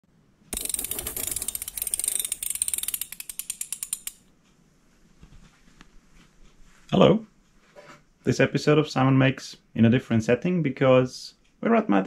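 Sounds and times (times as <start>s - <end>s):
ratcheting mechanical clicks: 0.5s - 4.3s.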